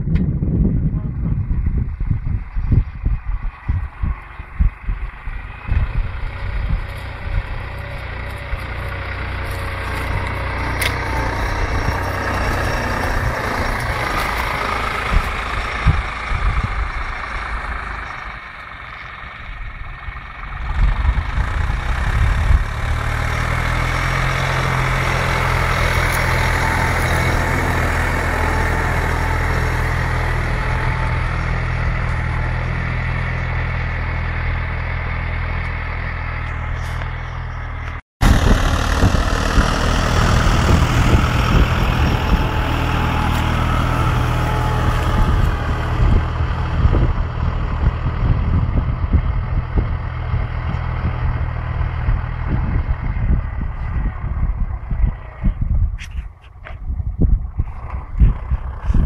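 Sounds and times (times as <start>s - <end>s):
low thumps: 0.0s - 17.2s, 37.9s - 59.0s
tractor diesel engine under load: 0.0s - 59.0s.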